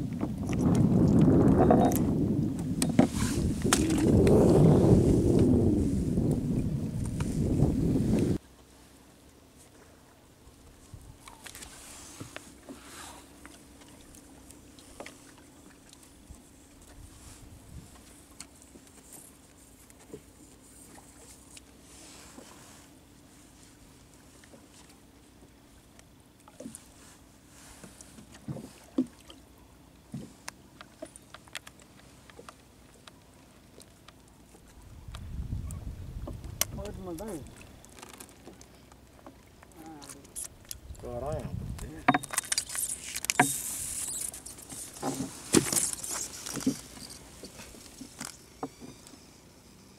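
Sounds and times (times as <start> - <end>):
light clicks and ticks: 30.4 - 33.2
knocks and scuffs of fish handling: 42.1 - 49.0.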